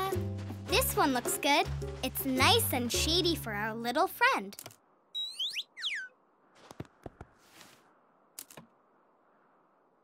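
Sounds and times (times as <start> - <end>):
whistle-like pitch glides: 5.2 - 6.2.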